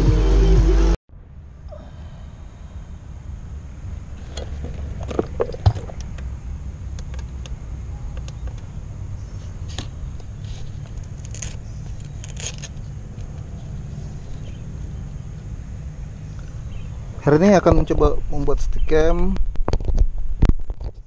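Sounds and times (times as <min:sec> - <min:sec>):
car idling rumble: 0:01.4 - 0:18.2.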